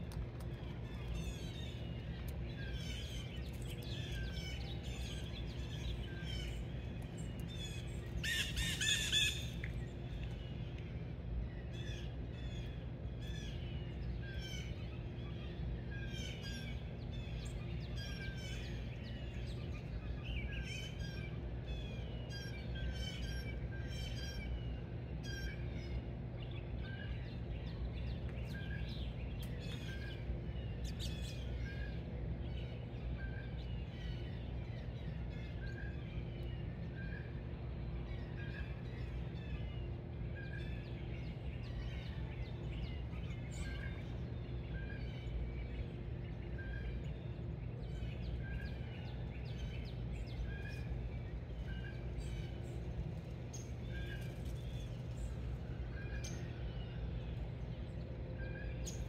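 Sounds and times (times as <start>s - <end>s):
low background rumble: 0.0s - 59.0s
small birds chirping: 0.1s - 59.0s.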